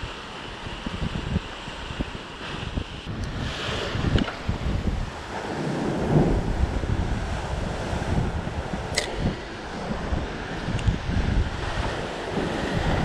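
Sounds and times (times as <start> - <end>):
sea waves breaking over rocks: 0.0 - 13.0
wind gusting on microphone: 0.0 - 13.0.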